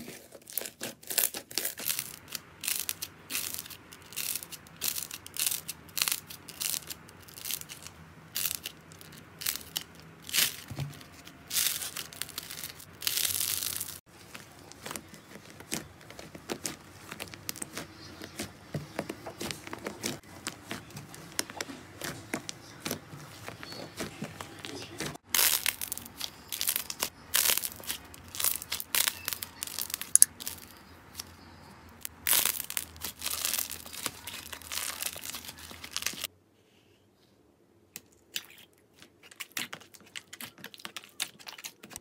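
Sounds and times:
slime crackling and tearing: 0.0s - 21.4s, 25.2s - 31.3s, 32.0s - 36.3s.

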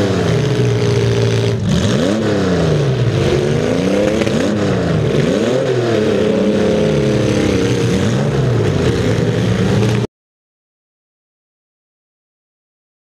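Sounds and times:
car engine revving: 0.0s - 10.1s.

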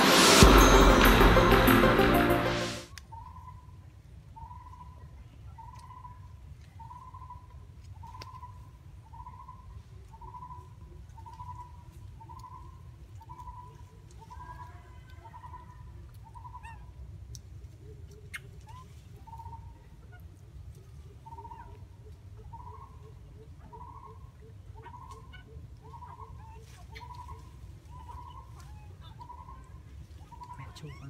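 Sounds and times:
low rumble: 0.0s - 2.8s
other bird calls: 21.2s - 31.0s.

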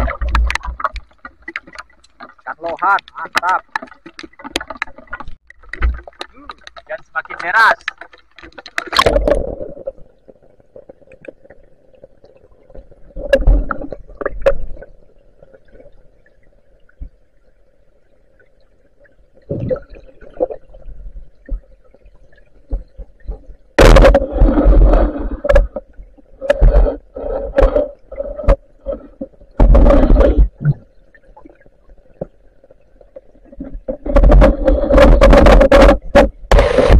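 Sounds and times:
water gurgling: 0.0s - 36.9s
knocks and bumps from swimmer: 33.6s - 36.9s.

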